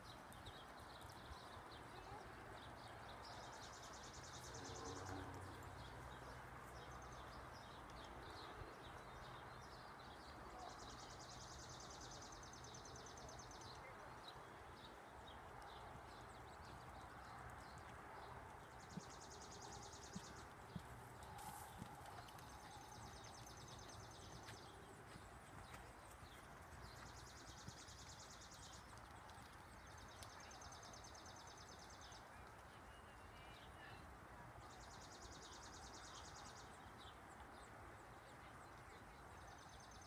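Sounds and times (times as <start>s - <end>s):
horse hoofbeats on sand: 15.7s - 30.1s.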